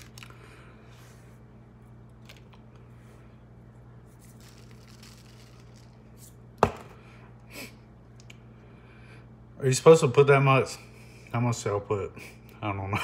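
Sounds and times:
faint low hum: 0.0s - 13.0s
hard object knocking on table: 6.6s - 6.9s.

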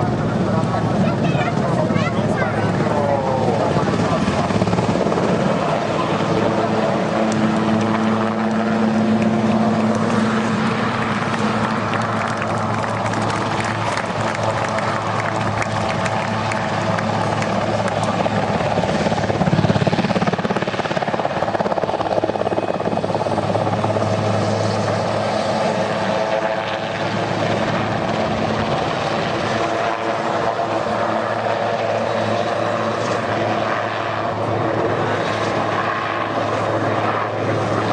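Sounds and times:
helicopter rotor and turbine noise: 0.0s - 37.9s.

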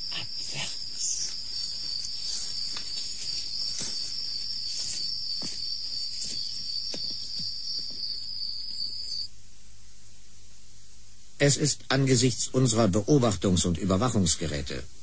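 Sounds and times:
crickets trilling: 0.0s - 9.4s.

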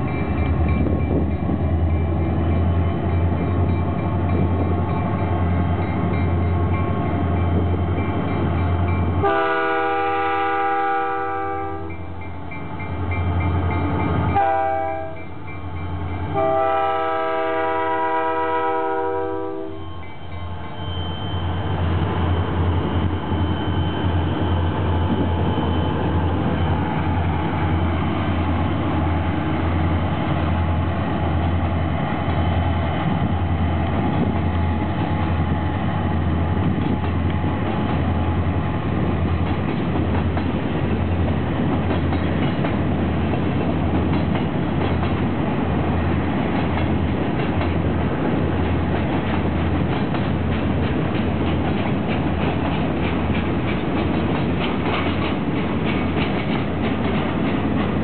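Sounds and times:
diesel locomotive engines running: 0.0s - 58.0s
freight cars wheels clicking on rails: 39.0s - 45.5s, 46.4s - 58.0s.

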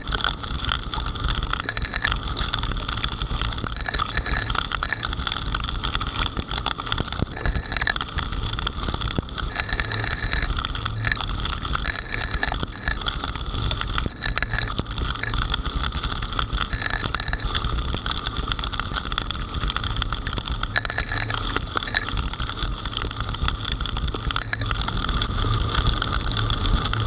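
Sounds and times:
rain drops striking camera: 0.0s - 27.0s
car driving on wet road: 19.0s - 27.0s.

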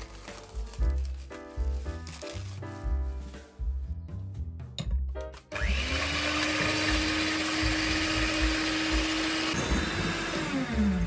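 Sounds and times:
electric hand mixer whine: 5.5s - 11.0s.

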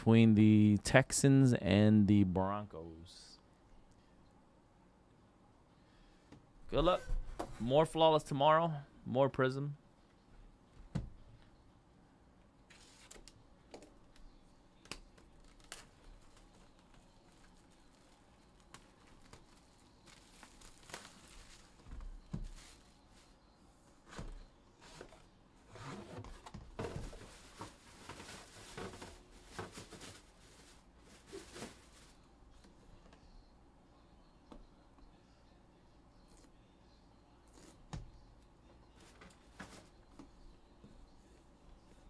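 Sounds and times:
plastic wrap crinkling and tearing: 14.9s - 21.9s.

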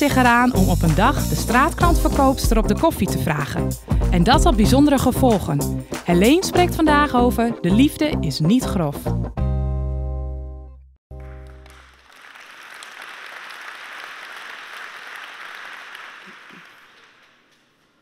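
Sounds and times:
audience applauding: 11.2s - 18.0s.

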